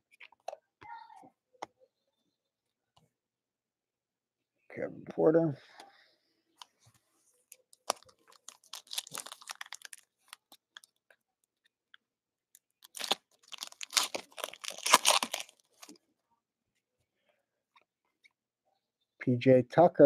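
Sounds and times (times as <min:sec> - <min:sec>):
foil wrapper crinkling: 0:07.8 - 0:11.0, 0:12.8 - 0:15.9.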